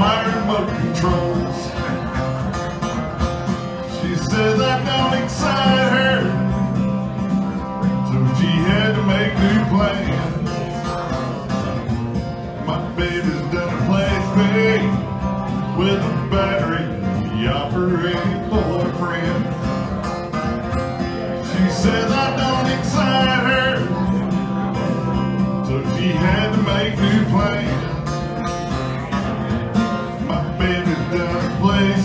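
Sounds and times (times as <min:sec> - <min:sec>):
man singing: 0:00.0 - 0:02.3, 0:03.7 - 0:06.8, 0:07.7 - 0:11.0, 0:12.6 - 0:19.8, 0:21.2 - 0:28.1, 0:30.1 - 0:32.0
acoustic guitar: 0:00.0 - 0:32.0.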